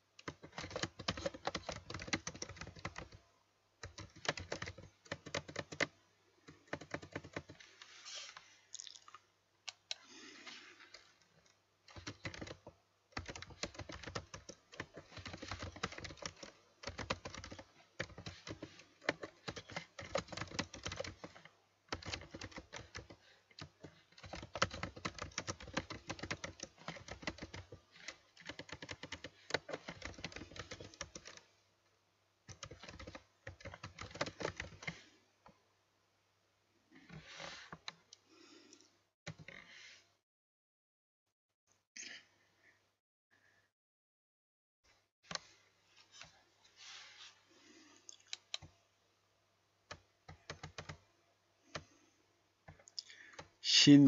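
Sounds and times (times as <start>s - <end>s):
computer keyboard typing: 0.2s - 3.2s, 3.8s - 5.9s, 6.5s - 7.6s, 11.9s - 31.4s, 32.5s - 35.0s, 49.9s - 51.0s.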